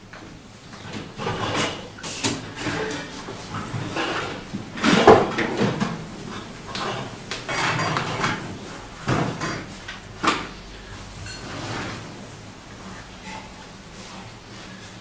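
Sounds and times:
hard objects knocking and clattering: 0.8s - 10.5s.

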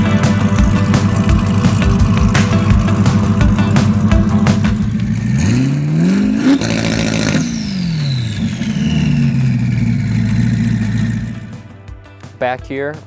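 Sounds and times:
car engine idling and revving: 0.0s - 11.8s
turbo whistle winding down: 6.0s - 11.4s.

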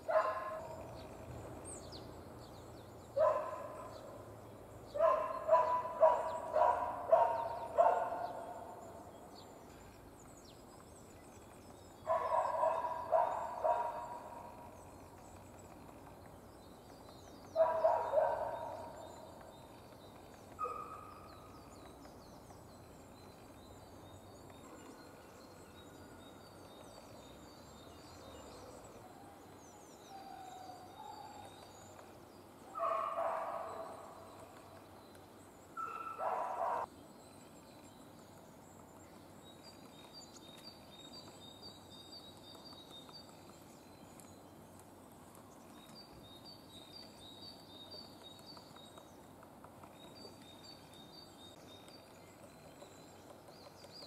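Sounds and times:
bark-like animal calls: 5.0s - 8.6s, 12.1s - 14.5s, 17.6s - 19.0s, 32.8s - 34.1s, 35.8s - 36.9s.

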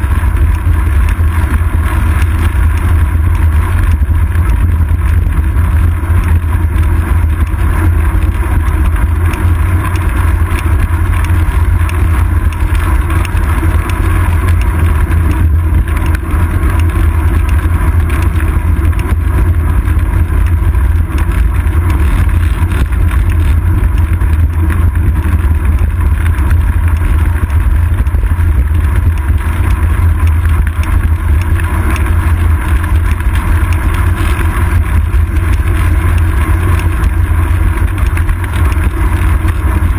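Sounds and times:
road vibration rumble: 0.0s - 39.9s.

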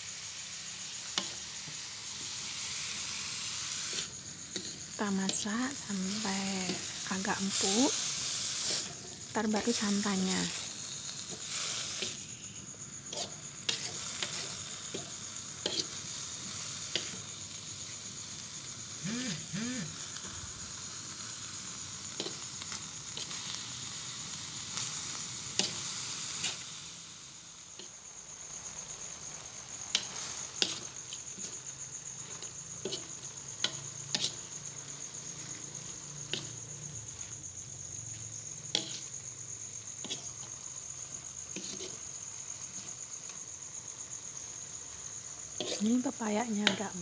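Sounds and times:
low sizzle: 0.0s - 47.0s
spatula scraping metal wok: 0.8s - 18.1s, 29.3s - 37.5s, 38.1s - 43.1s, 45.5s - 46.0s, 46.6s - 47.0s.

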